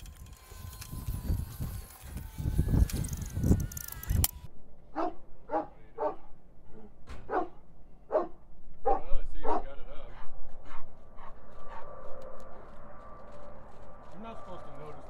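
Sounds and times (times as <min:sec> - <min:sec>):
dog barking: 0:04.9 - 0:06.3, 0:07.3 - 0:10.3.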